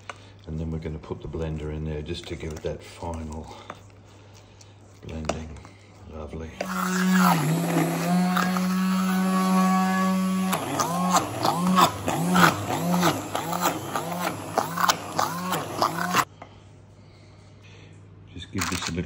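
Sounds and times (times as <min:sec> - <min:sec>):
stick blender motor humming: 0:06.6 - 0:16.3.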